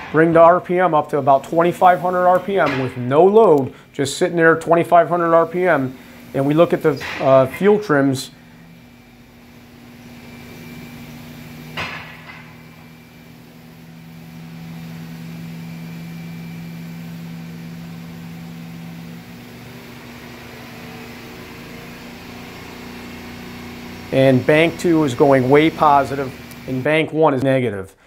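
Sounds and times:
engine droning: 0.0 - 27.0.

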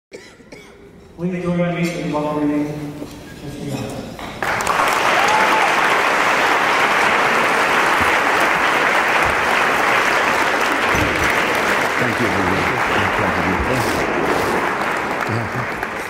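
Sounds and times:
audience applauding: 4.4 - 16.0.

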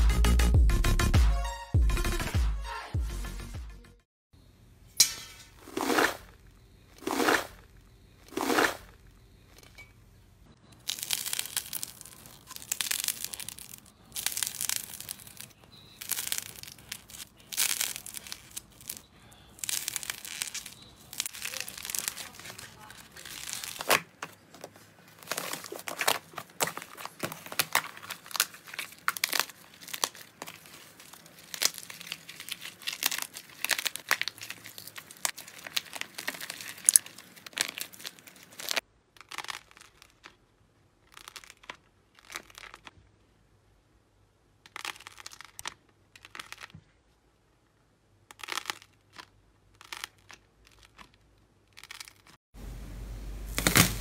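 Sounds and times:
crust of slime crackling: 5.6 - 9.7, 10.8 - 40.4, 41.0 - 43.0, 44.6 - 46.8, 48.2 - 52.4, 53.4 - 54.0
slime squishing: 10.8 - 40.4, 41.1 - 43.0, 44.7 - 46.8, 48.3 - 52.4.

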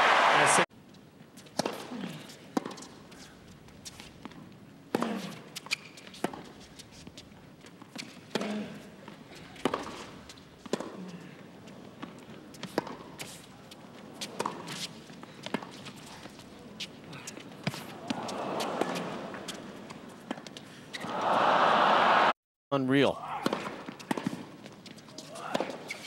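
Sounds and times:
tennis rackets hitting ball: 1.5 - 3.0, 9.5 - 11.0, 12.0 - 13.4, 14.2 - 16.4, 17.3 - 21.3, 23.4 - 26.0.

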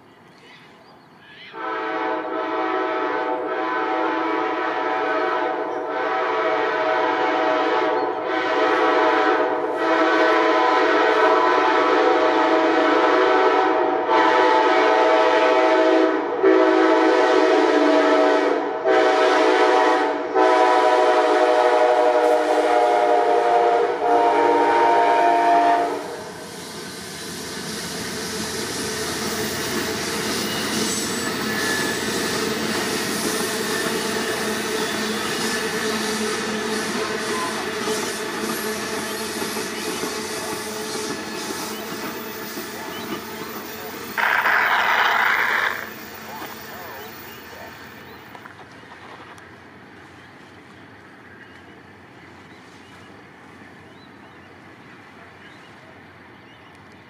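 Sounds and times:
train running noise: 0.0 - 57.0
train air horn: 1.5 - 27.0, 29.3 - 41.5.

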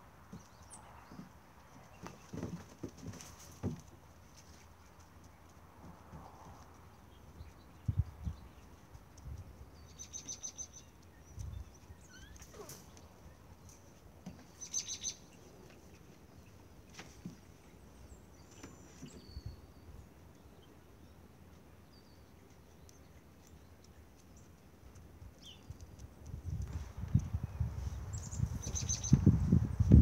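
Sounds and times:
faint bird chirps: 28.1 - 29.2.

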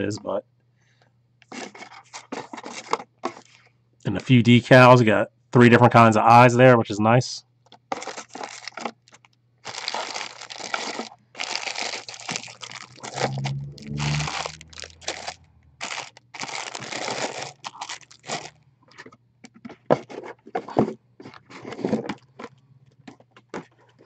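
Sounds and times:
plastic packaging crinkling: 1.5 - 3.6, 7.8 - 22.6.

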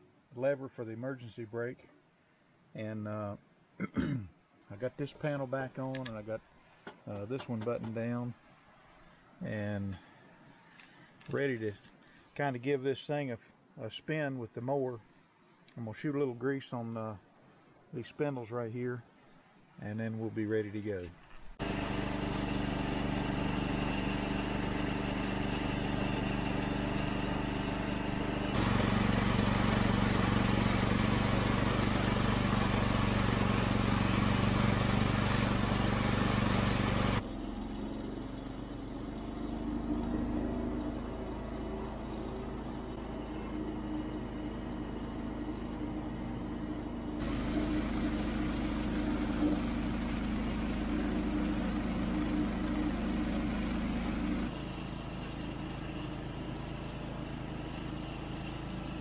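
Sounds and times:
garden tractor engine running: 21.6 - 59.0.

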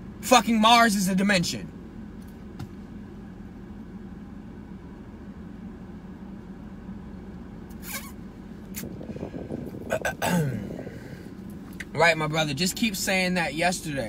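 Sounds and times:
car cabin hum: 0.0 - 14.0
short noises: 7.7 - 11.8.

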